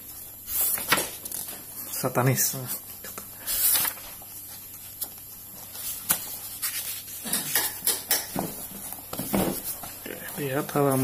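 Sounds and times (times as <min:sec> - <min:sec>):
book pages turning: 0:00.5 - 0:01.7, 0:02.6 - 0:07.7.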